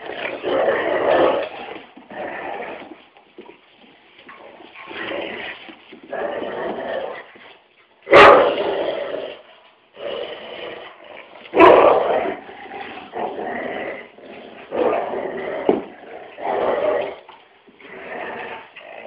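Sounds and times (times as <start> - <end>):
dogs growling: 0.0 - 3.5, 4.2 - 7.6, 8.2 - 19.0
dog barks: 8.1 - 8.6, 11.5 - 12.1.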